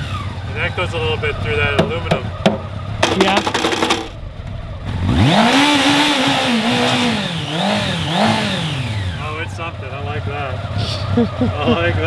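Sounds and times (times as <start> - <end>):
motorcycle engine revving: 0.0 - 12.0
starter rapid clicks: 2.5 - 4.2.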